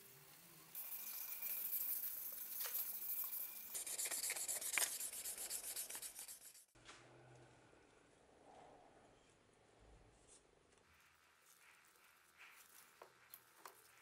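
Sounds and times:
sandpaper rasping on wood: 3.7s - 6.7s.

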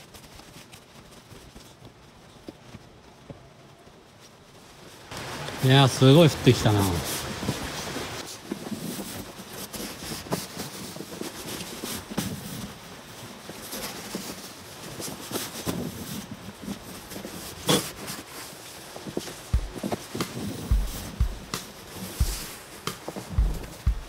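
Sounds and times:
snow scoop scraping through snow: 6.7s - 23.8s
sharp knock: 19.6s - 24.0s.

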